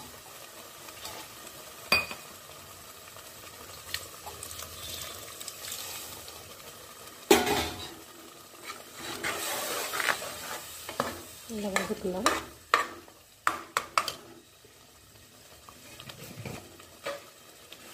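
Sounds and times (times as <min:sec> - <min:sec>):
faint sizzle: 0:00.0 - 0:17.9.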